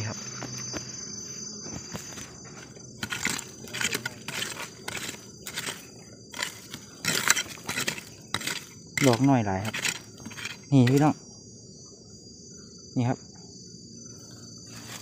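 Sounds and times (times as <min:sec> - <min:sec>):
insects buzzing: 0:00.0 - 0:15.0
stick raking through gravelly soil: 0:01.9 - 0:11.2, 0:14.6 - 0:15.0.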